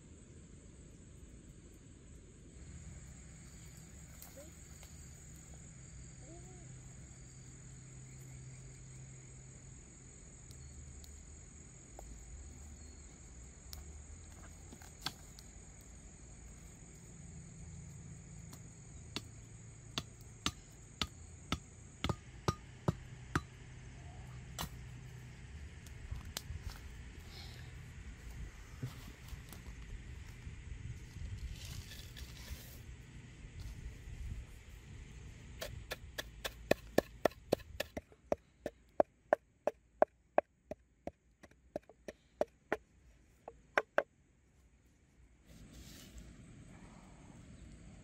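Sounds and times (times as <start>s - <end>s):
insects droning: 0.0s - 45.4s
sharp knocks: 43.5s - 44.1s.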